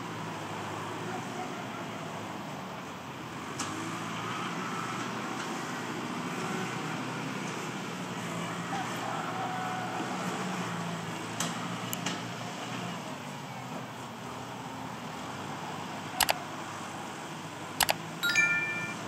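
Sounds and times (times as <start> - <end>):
sharp clicks: 17.8 - 18.0.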